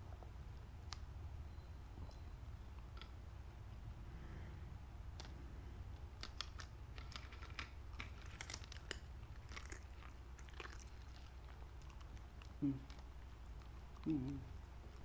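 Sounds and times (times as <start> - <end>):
dog crunching crispy food: 6.2 - 14.1.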